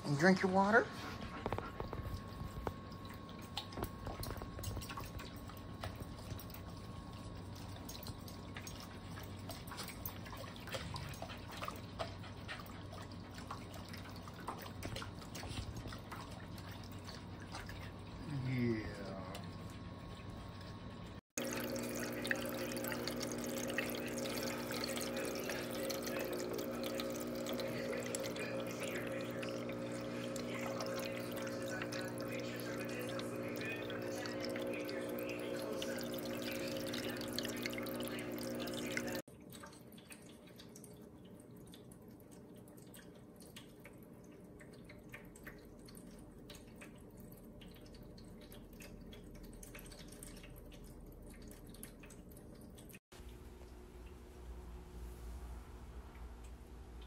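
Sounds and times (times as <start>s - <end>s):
fountain pump humming: 0.0s - 41.4s
water trickling and splashing: 0.1s - 57.0s.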